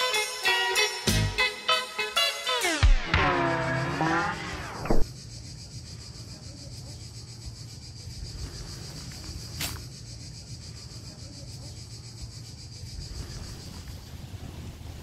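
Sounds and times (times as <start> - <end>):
insects chirring: 0.0 - 15.0.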